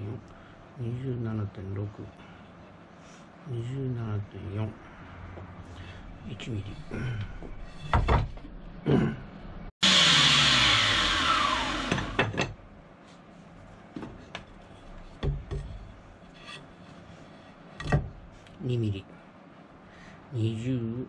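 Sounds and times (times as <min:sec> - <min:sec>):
tools and wood knocking: 0:07.4 - 0:08.6, 0:14.0 - 0:16.7, 0:17.8 - 0:18.2
electric planer spinning down: 0:09.8 - 0:12.2.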